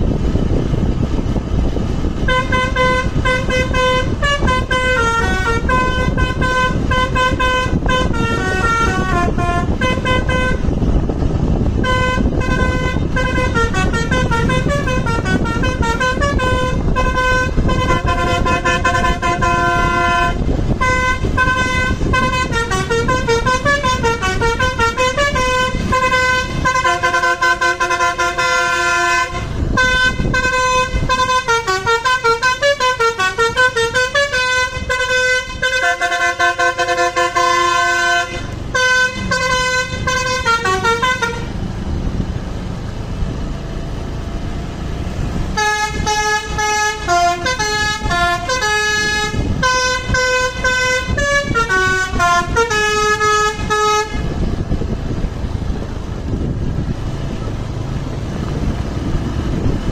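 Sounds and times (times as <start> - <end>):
multi-tone bus horn melody: 0.2 - 41.8, 45.3 - 56.8.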